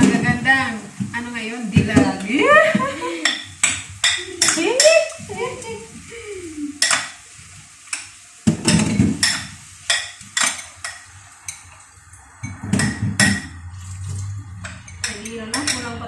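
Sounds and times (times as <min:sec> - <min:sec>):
dishes clinking: 0:01.8 - 0:05.7, 0:06.8 - 0:07.2, 0:07.9 - 0:11.8, 0:12.4 - 0:16.0
dishes rattling clatter: 0:12.4 - 0:13.6.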